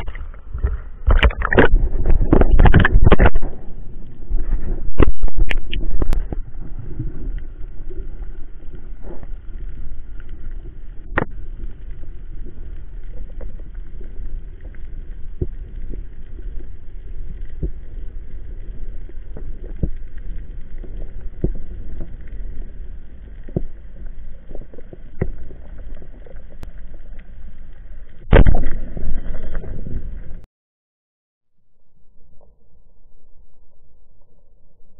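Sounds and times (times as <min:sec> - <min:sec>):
underwater rumble: 0:00.0 - 0:30.5, 0:31.6 - 0:34.9
faint hum: 0:31.5 - 0:34.9.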